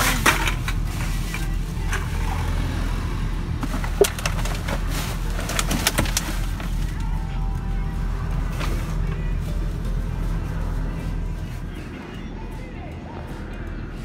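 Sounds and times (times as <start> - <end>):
steady low hum: 0.0 - 14.0
plastic bags rustling: 3.6 - 11.9.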